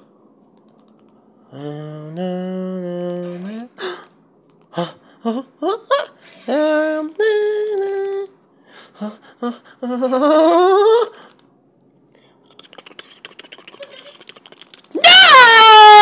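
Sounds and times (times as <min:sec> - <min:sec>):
high-pitched voice singing: 0:01.6 - 0:03.7, 0:04.8 - 0:08.4.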